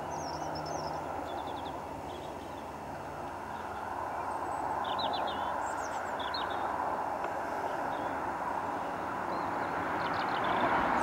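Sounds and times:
bird chirps: 0:00.0 - 0:06.7.

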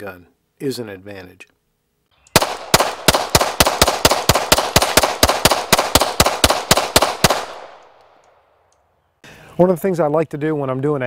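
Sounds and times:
pistol rapid fire: 0:02.4 - 0:08.0.

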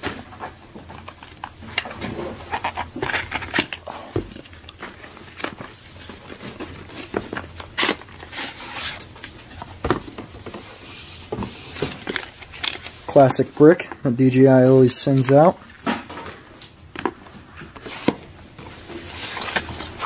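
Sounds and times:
cardboard packaging scraping and rustling: 0:00.2 - 0:13.5, 0:17.5 - 0:20.0.

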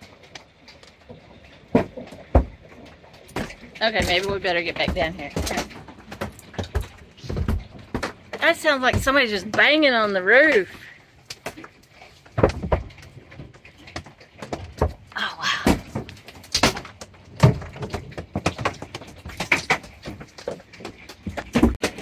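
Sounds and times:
hailstones banging on roof: 0:03.3 - 0:10.7, 0:14.4 - 0:22.0.

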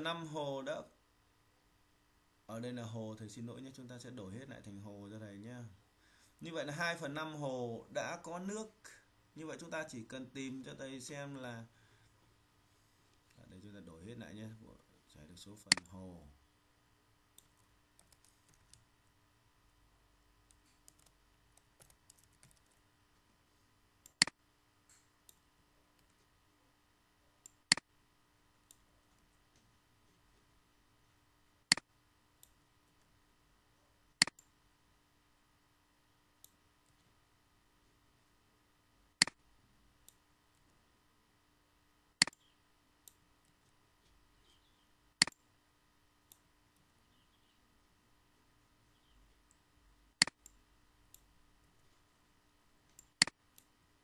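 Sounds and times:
computer mouse clicks: 0:15.7 - 0:16.0, 0:17.4 - 0:18.9, 0:20.5 - 0:22.8, 0:24.0 - 0:25.4, 0:34.2 - 0:34.5, 0:42.2 - 0:43.6, 0:45.2 - 0:45.5
sharp mouse clicks: 0:42.2 - 0:42.5, 0:45.2 - 0:45.4.

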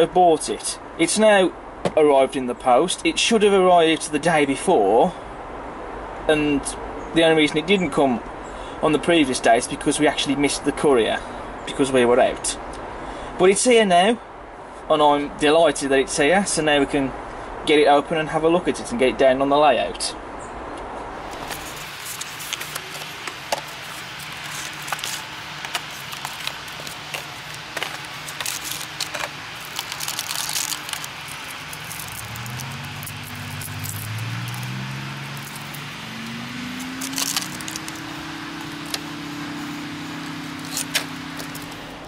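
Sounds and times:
cardboard and plastic crackling: 0:21.2 - 0:39.2, 0:40.2 - 0:42.0.

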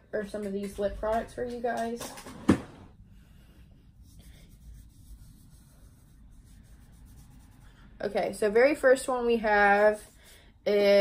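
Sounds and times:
makeup wipe rubbing skin: 0:03.8 - 0:07.8.

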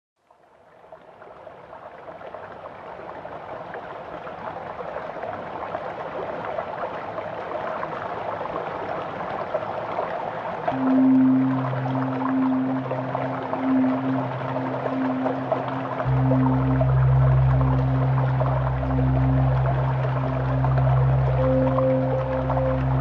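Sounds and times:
rushing water of stream: 0:00.5 - 0:23.0
low held synth note: 0:10.7 - 0:23.0.

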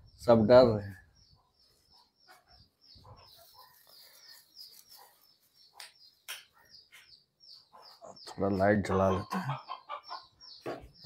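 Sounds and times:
chickens chirping: 0:00.0 - 0:11.0
chickens clucking softly: 0:07.6 - 0:11.0.

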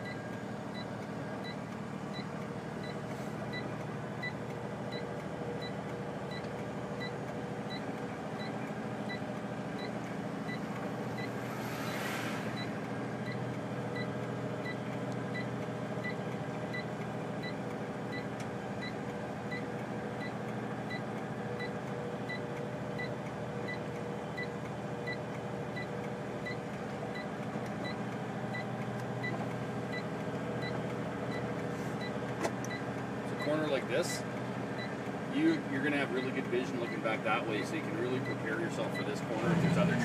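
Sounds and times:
truck diesel engine running: 0:00.0 - 0:40.0
brief hiss: 0:11.5 - 0:12.6
high electronic beeps: 0:38.2 - 0:40.0.

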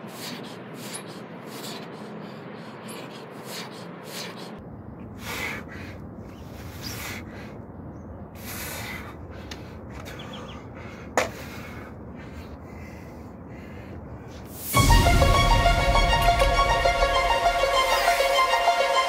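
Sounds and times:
man breathing hard: 0:00.0 - 0:15.0
steady low rumble: 0:00.0 - 0:19.0.

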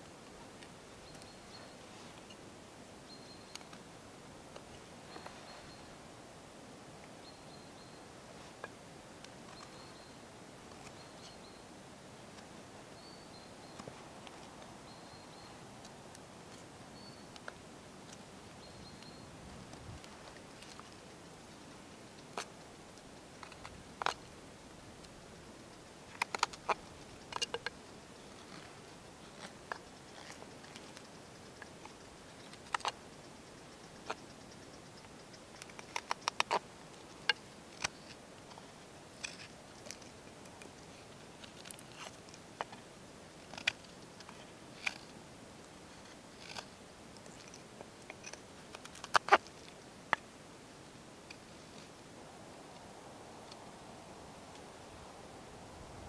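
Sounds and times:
knife shaving wood clicks: 0:35.0 - 0:38.0.

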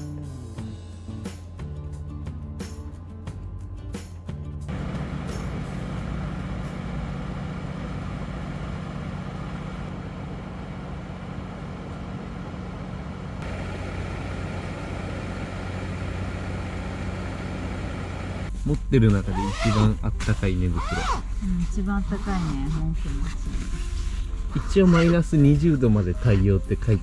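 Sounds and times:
highway background noise: 0:04.7 - 0:19.2
vehicle engines idling: 0:04.7 - 0:27.0.

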